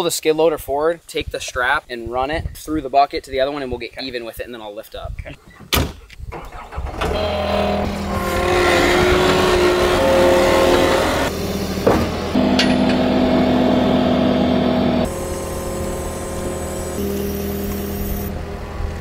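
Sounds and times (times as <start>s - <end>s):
diesel engine at high throttle: 6.6s - 19.0s
metal clank: 11.8s - 13.1s.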